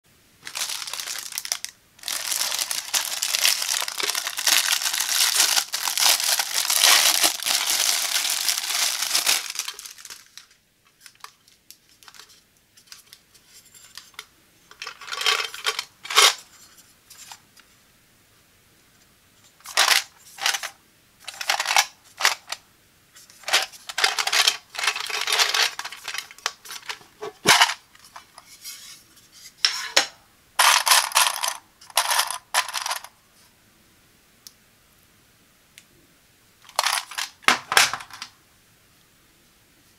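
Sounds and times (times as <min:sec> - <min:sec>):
plastic wrap crinkling and tearing: 0:00.4 - 0:13.2, 0:23.4 - 0:28.3, 0:36.7 - 0:38.3
paper band rustling: 0:00.4 - 0:17.4, 0:23.2 - 0:30.0.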